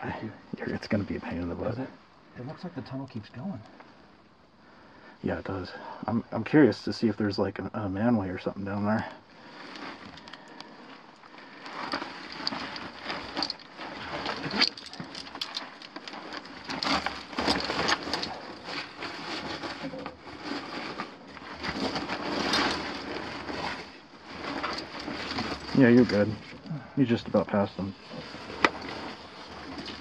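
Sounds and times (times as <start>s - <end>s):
clothing rubbing against rock: 9.4s - 26.6s, 27.3s - 30.0s.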